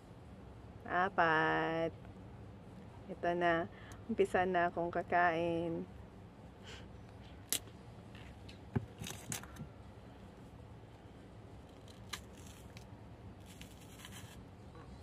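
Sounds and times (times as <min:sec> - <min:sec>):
banana handling clicks and rustles: 0:07.3 - 0:09.7, 0:11.6 - 0:14.5
banana top snapping: 0:11.6 - 0:14.4.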